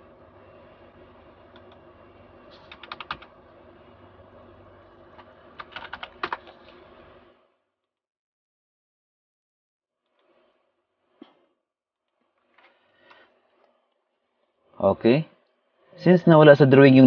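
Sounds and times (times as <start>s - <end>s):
faint steady hum: 0.0s - 7.7s, 10.0s - 17.0s
computer keyboard typing: 1.5s - 1.8s, 2.6s - 3.3s, 5.2s - 6.8s.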